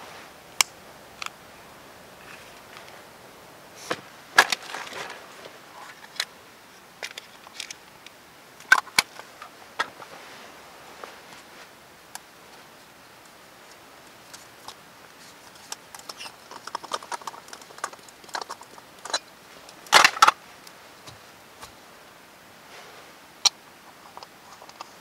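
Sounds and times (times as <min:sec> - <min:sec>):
small metal clicks and scrapes: 0:07.0 - 0:10.0, 0:13.7 - 0:20.4.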